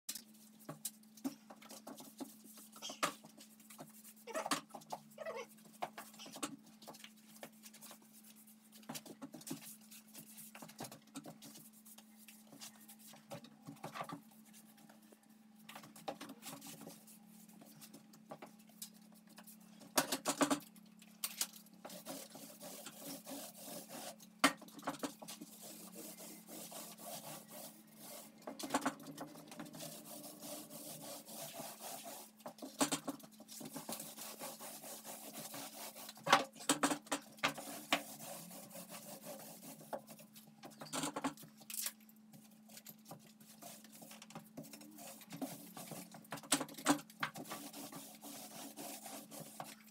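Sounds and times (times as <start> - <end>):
paint roller scratchy rubbing: 21.9 - 24.2, 25.0 - 36.3, 37.4 - 40.3, 43.4 - 46.3, 47.4 - 49.9.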